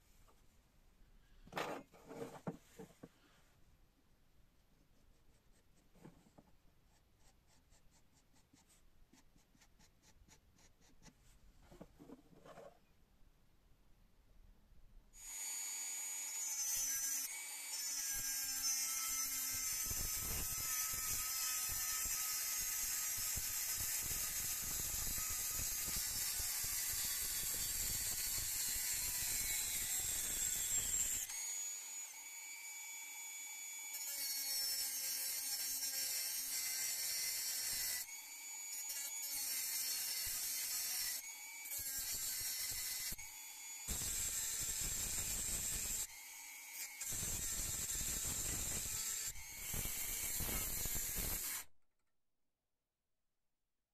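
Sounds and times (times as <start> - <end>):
rotary tool cutting metal: 15.2 - 32.4, 33.6 - 51.7.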